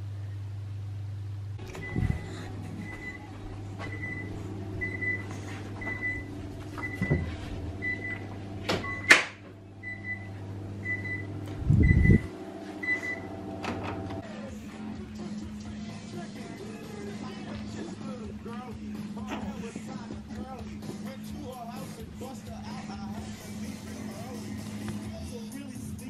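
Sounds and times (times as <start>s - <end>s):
low hum: 0.0s - 21.4s
oven timer beeping: 1.7s - 2.2s, 2.8s - 14.1s.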